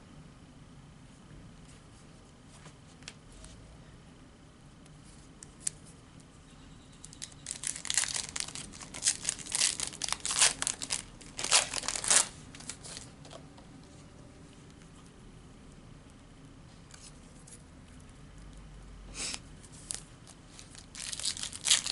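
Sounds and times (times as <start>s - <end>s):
foil wrapper tearing and crinkling: 7.2s - 13.1s, 19.8s - 21.9s.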